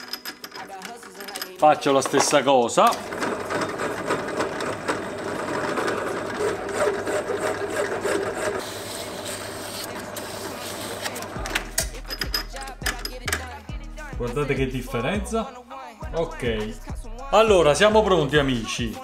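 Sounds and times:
drill press motor hum: 2.8s - 13.5s
file rasping on metal rod: 5.5s - 11.1s.

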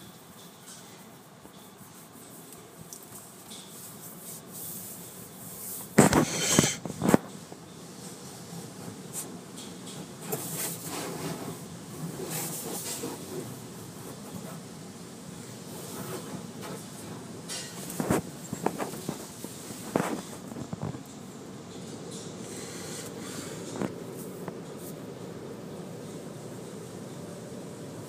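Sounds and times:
water spraying against car: 10.3s - 14.6s.

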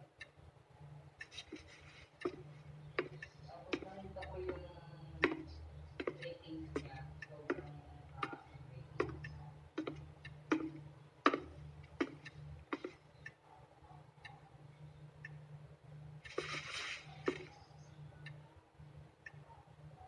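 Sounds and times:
clock ticking: 0.0s - 20.0s
faint low hum: 0.0s - 20.0s
soft rustle: 1.3s - 2.7s, 16.2s - 17.3s.

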